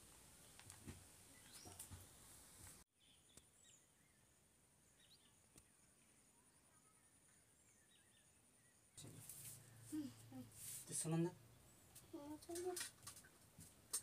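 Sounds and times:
steady high hiss: 0:00.0 - 0:02.9
soft bird chirps: 0:01.3 - 0:02.0, 0:03.0 - 0:10.2.

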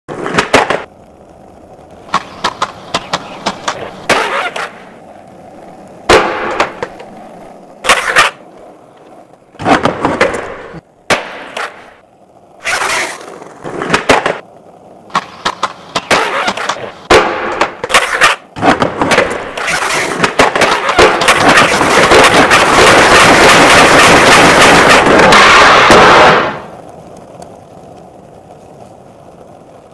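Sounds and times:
skateboard clacking: 0:00.1 - 0:29.9
skateboard wheels rolling on pavement: 0:00.1 - 0:29.9.

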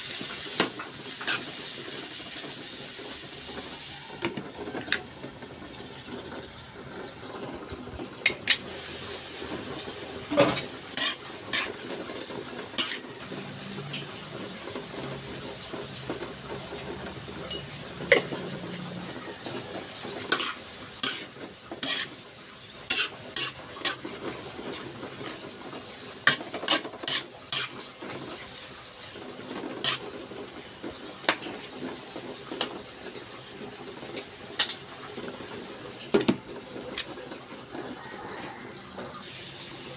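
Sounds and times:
vegetables sizzling in a wok: 0:00.0 - 0:39.9
spatula clacking against wok: 0:10.6 - 0:11.8, 0:12.7 - 0:13.0, 0:19.5 - 0:22.2, 0:22.9 - 0:24.1, 0:26.2 - 0:27.8.

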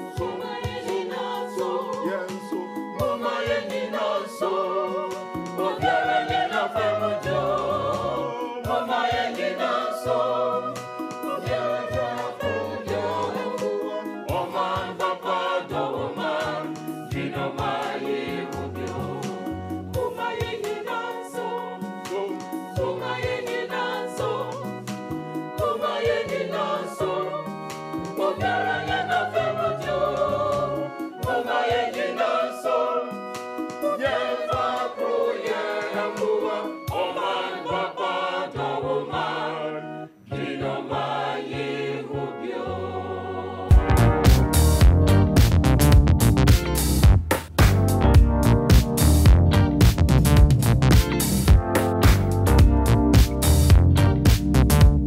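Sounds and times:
choir singing: 0:00.0 - 0:45.3
sustained keyboard chords: 0:42.2 - 0:55.0
stepping bass line: 0:43.7 - 0:55.0.

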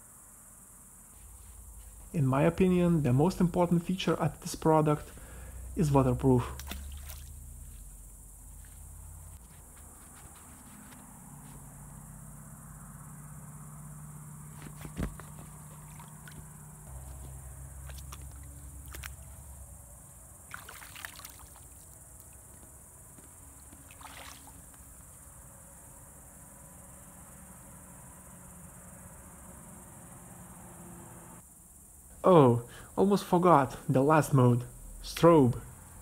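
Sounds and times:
crickets chirping: 0:00.0 - 0:36.0
water splashing and trickling: 0:06.2 - 0:08.9, 0:15.6 - 0:19.6, 0:20.4 - 0:22.4, 0:23.7 - 0:24.8.

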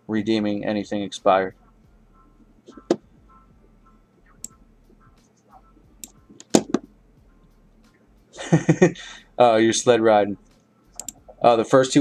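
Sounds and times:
sharp clicks and taps: 0:04.4 - 0:06.9, 0:10.5 - 0:11.4.

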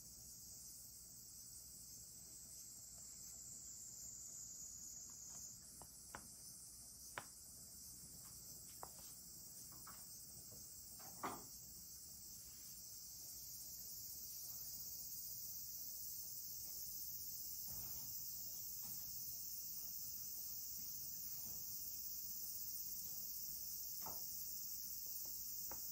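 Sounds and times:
crickets chirping: 0:00.0 - 0:25.9.

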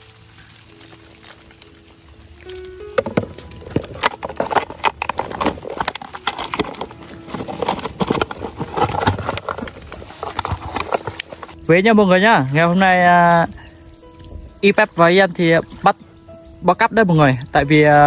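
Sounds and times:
plastic bottle crinkling: 0:00.0 - 0:11.6
soil scraping: 0:00.0 - 0:18.0.

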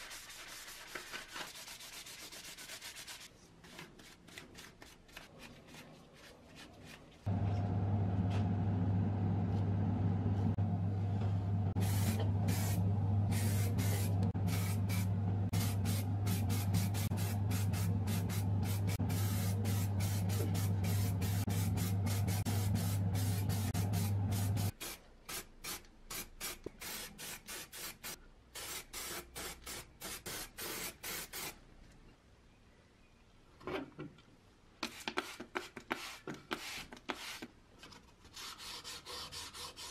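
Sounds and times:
steady low hum: 0:07.3 - 0:24.7
spray can hissing bursts: 0:11.8 - 0:31.6.

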